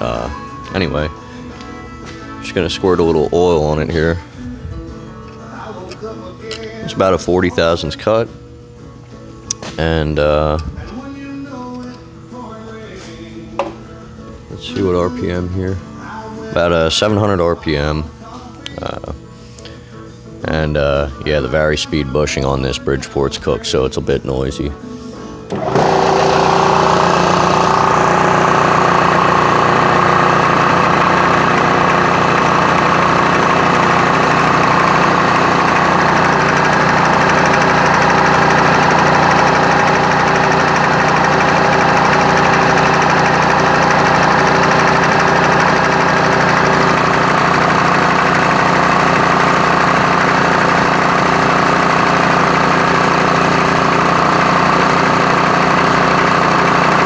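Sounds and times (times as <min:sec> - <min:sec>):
milling machine spindle running: 0:25.5 - 0:57.0.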